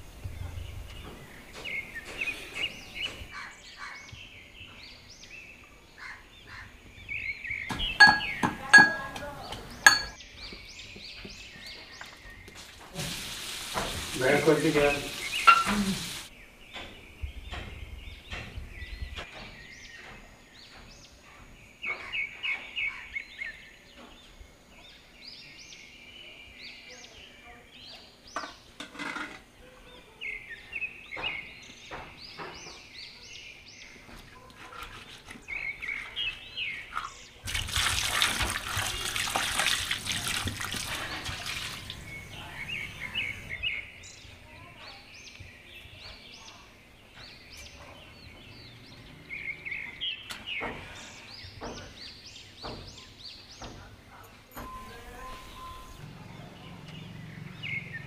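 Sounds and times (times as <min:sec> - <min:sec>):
birds chirping: 0:00.0 - 0:58.0
water pouring and splashing: 0:12.1 - 0:16.3, 0:36.9 - 0:43.6.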